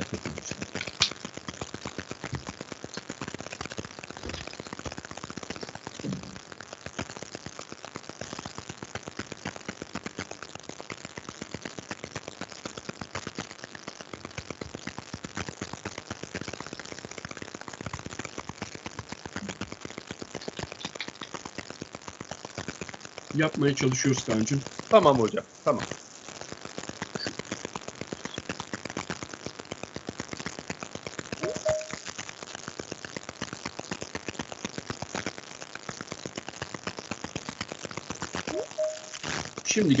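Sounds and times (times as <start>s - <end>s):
soft thump: 6.0s - 6.4s.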